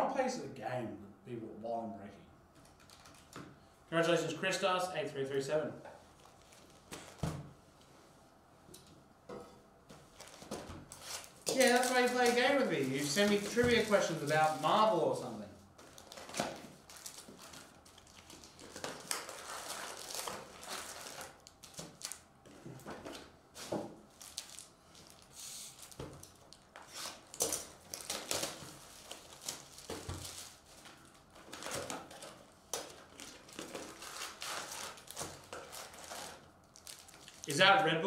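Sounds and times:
wrapper crinkling and rustling: 0:02.6 - 0:03.4, 0:06.0 - 0:07.2, 0:10.1 - 0:22.4, 0:23.0 - 0:37.9.

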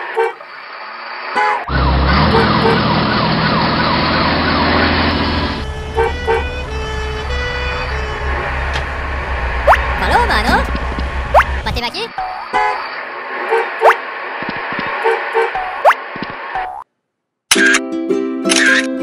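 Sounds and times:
emergency siren wailing: 0:01.7 - 0:11.6
low engine rumble: 0:01.7 - 0:11.8.

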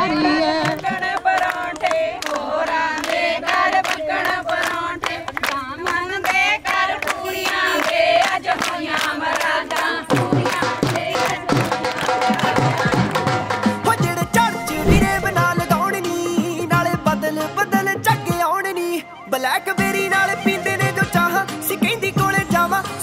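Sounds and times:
women singing in unison: 0:00.0 - 0:11.7
rhythmic hand clapping: 0:00.6 - 0:13.4
low drum beat: 0:14.6 - 0:15.9.

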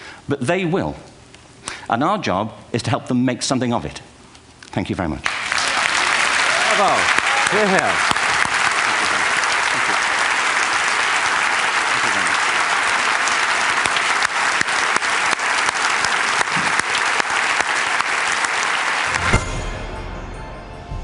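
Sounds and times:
audience clapping: 0:05.2 - 0:19.5
music: 0:19.1 - 0:21.0.

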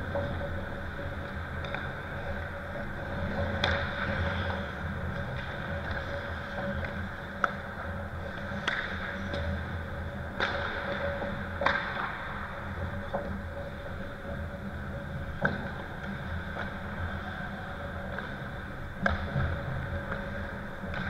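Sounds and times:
hockey sticks and puck clacking: 0:00.1 - 0:21.0.

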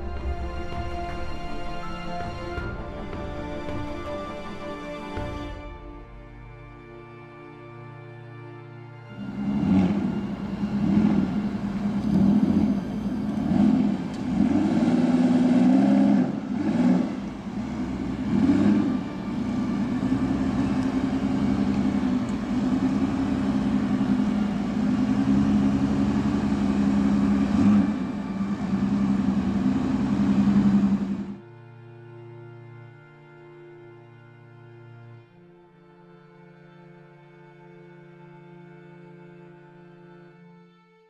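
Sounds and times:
car engine revving: 0:09.2 - 0:31.4.

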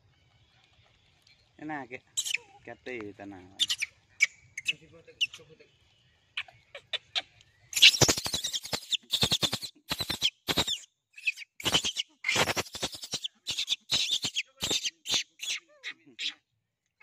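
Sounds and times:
macaques squeaking and squealing: 0:02.2 - 0:02.7, 0:03.6 - 0:05.5, 0:06.4 - 0:16.4.

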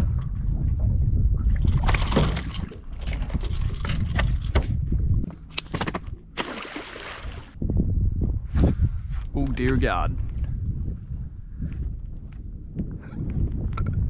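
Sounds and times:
boat rumble: 0:00.0 - 0:07.6
wind on microphone: 0:00.0 - 0:14.0.

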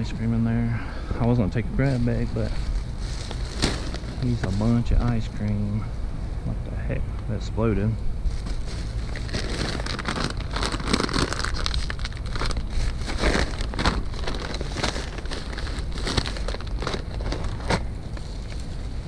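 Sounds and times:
steady low hum: 0:00.0 - 0:19.0
plastic bags rustling: 0:01.3 - 0:05.3, 0:08.3 - 0:18.8.

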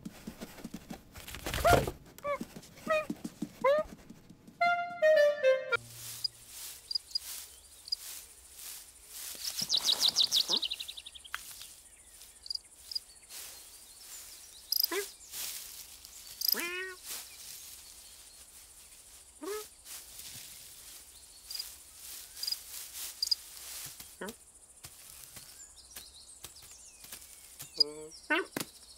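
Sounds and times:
rustling and ticking in grass: 0:05.8 - 0:27.9
birds chirping: 0:05.8 - 0:28.9
upward sweeping calls: 0:09.3 - 0:11.2
bird trill: 0:09.4 - 0:17.5.

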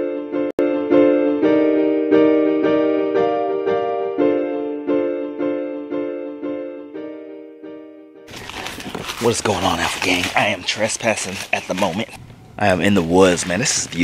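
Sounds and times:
piano-like keyboard chords: 0:00.0 - 0:08.3.

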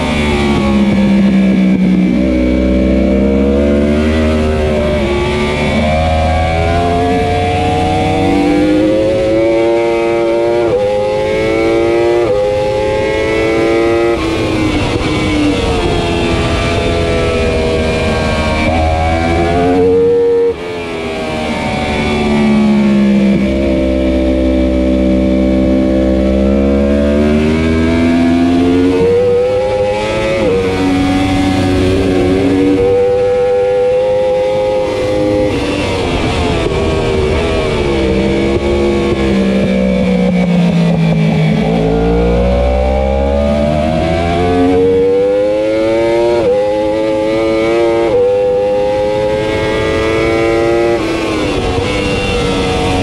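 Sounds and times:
motorcycle racing engine: 0:00.0 - 0:53.0
wind rush: 0:10.9 - 0:26.4, 0:27.2 - 0:41.9, 0:48.0 - 0:53.0.

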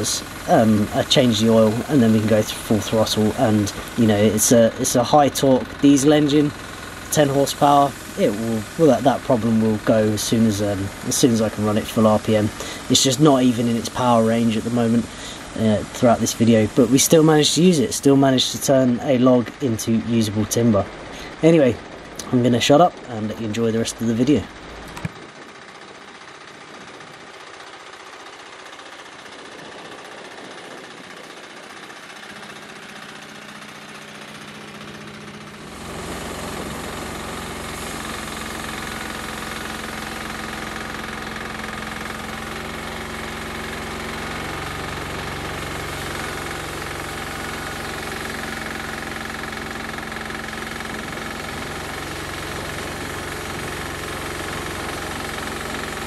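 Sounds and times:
diesel engine running: 0:00.0 - 0:56.0
band blade cutting log: 0:34.2 - 0:56.0.

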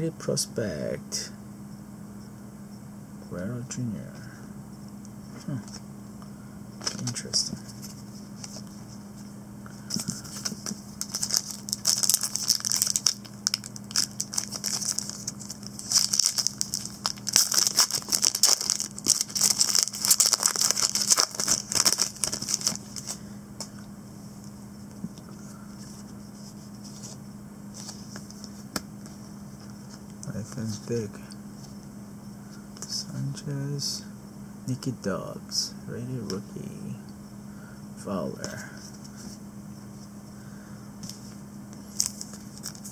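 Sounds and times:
card handling: 0:06.8 - 0:09.0, 0:09.7 - 0:23.9, 0:25.0 - 0:30.9, 0:41.0 - 0:42.9
foil wrapper crinkling and tearing: 0:09.9 - 0:23.2, 0:41.9 - 0:42.9.

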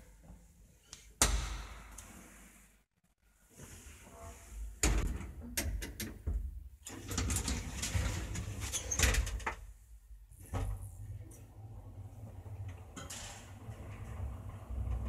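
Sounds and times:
elevator doors sliding: 0:10.6 - 0:15.0.

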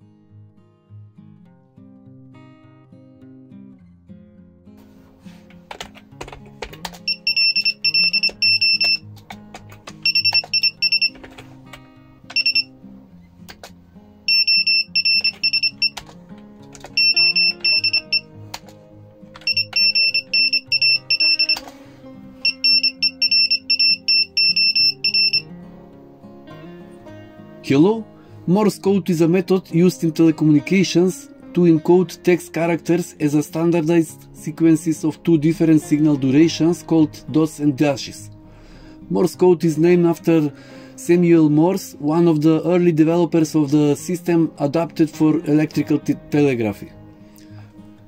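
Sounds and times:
acoustic guitar music: 0:00.0 - 0:48.0
morse code buzzer beeping: 0:07.1 - 0:09.0, 0:10.0 - 0:11.2, 0:12.3 - 0:12.7, 0:14.3 - 0:16.0, 0:16.9 - 0:18.3, 0:19.4 - 0:21.6, 0:22.4 - 0:25.5.

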